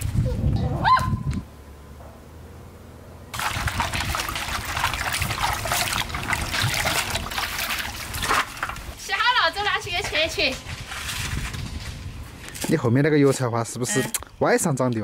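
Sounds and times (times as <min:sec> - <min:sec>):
water splashing in metal basin: 0:03.3 - 0:09.0.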